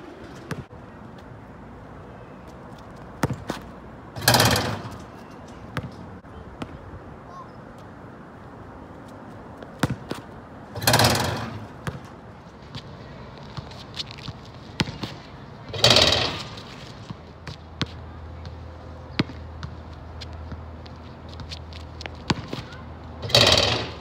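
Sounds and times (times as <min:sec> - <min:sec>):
basketball bouncing on asphalt: 0:00.2 - 0:00.7, 0:03.0 - 0:05.1, 0:05.7 - 0:07.0, 0:09.3 - 0:24.0.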